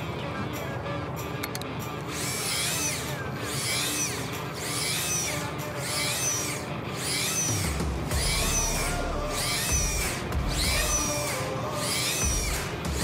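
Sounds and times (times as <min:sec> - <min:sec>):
reel motor whining in pulses: 0:01.8 - 0:13.0.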